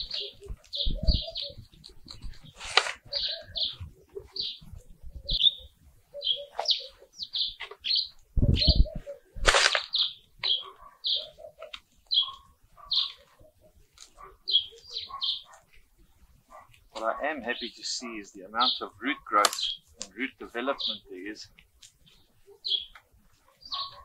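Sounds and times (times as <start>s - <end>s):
hands rustling potting soil: 0.0s - 8.4s, 9.1s - 24.0s
bird chirping: 0.0s - 24.0s
sharp scrape: 2.5s - 3.3s.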